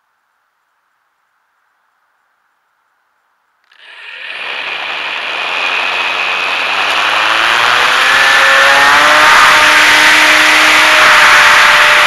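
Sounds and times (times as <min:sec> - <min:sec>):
electric motor and propeller whine: 0:03.6 - 0:12.0.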